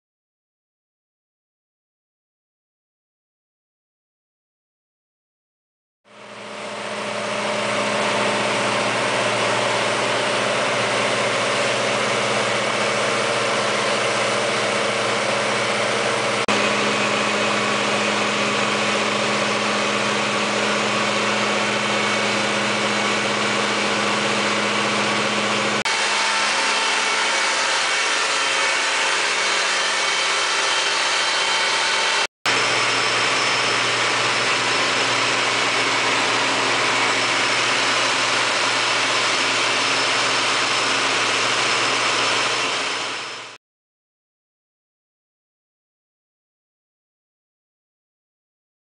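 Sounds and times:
diesel generator engine running: 0:06.1 - 0:43.6.

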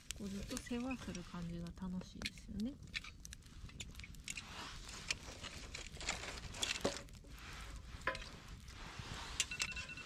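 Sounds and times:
sharp pops and snaps: 0:00.0 - 0:07.2
low rush of flame: 0:00.0 - 0:10.0
wood fire crackling: 0:00.0 - 0:10.0.

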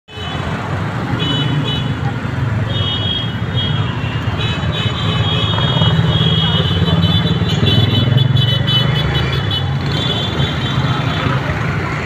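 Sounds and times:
street traffic: 0:00.1 - 0:12.0.

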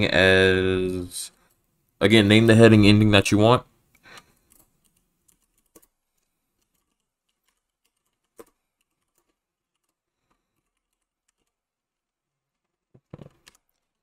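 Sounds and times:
computer keyboard typing: 0:04.4 - 0:11.6.

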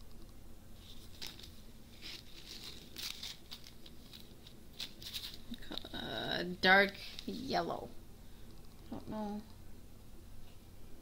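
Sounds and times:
plastic bags crinkling: 0:00.8 - 0:05.8.

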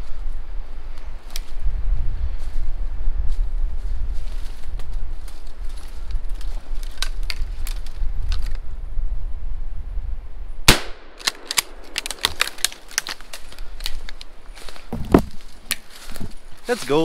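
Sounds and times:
footsteps through twigs and leaves: 0:00.0 - 0:08.8, 0:11.2 - 0:17.0
wind rumble on microphone: 0:00.0 - 0:10.7, 0:11.7 - 0:16.7
shotgun shot: 0:10.7 - 0:12.4.

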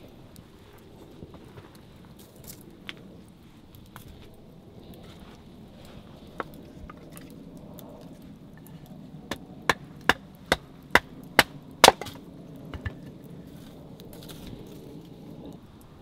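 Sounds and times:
sharp wooden knocks: 0:09.7 - 0:13.0.

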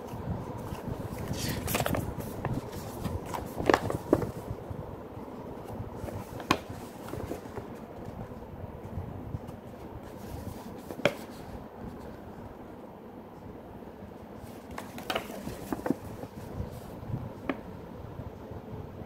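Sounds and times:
paper rustling: 0:00.0 - 0:04.6, 0:05.6 - 0:08.4, 0:09.4 - 0:12.2, 0:14.4 - 0:17.0.

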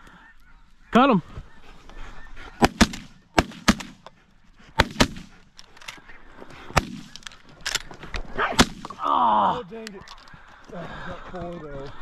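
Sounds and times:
shotgun blasts with echo: 0:02.6 - 0:04.0, 0:04.8 - 0:05.4, 0:06.7 - 0:07.2, 0:08.5 - 0:09.0.

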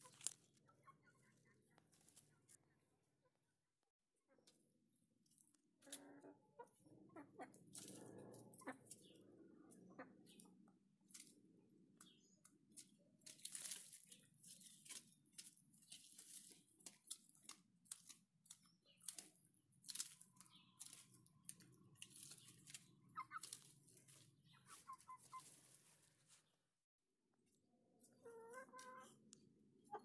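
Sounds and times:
crackling and rustling: 0:00.0 - 0:02.6, 0:12.9 - 0:26.5.

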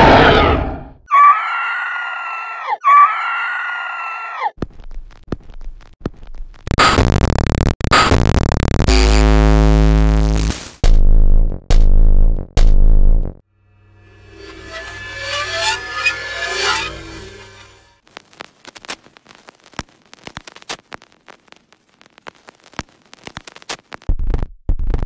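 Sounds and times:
loud pulses: 0:06.7 - 0:18.0
low droning tone: 0:13.6 - 0:17.9.

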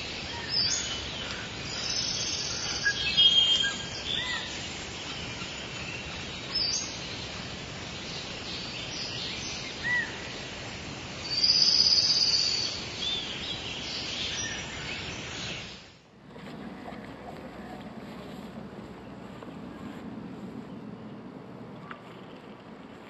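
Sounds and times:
small birds chirping: 0:00.0 - 0:16.0
outdoor background hiss: 0:00.0 - 0:23.0.

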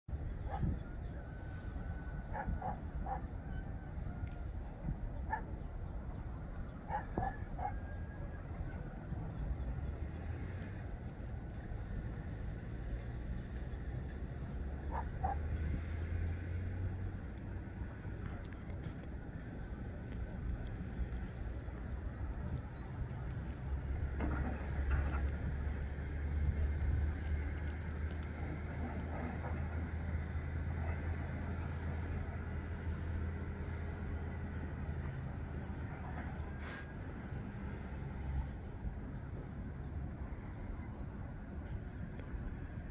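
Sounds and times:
wind rumbling on microphone: 0:00.1 - 0:42.9
distant hound barking: 0:02.3 - 0:03.3, 0:05.3 - 0:05.6, 0:06.8 - 0:08.0, 0:14.8 - 0:15.5
small birds chirping: 0:18.3 - 0:23.7.

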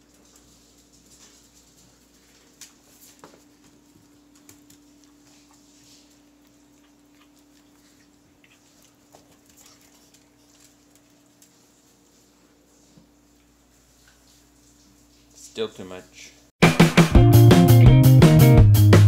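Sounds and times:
dog toenails clicking on tile: 0:00.0 - 0:11.6.

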